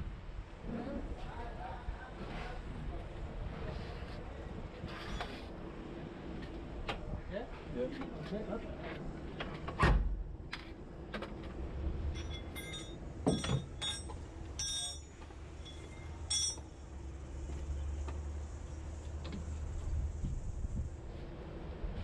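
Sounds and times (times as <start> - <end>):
glass clinks and knocks: 12.1 - 16.7
bright glass ring: 12.1 - 16.8
steady low rumble: 16.7 - 22.0.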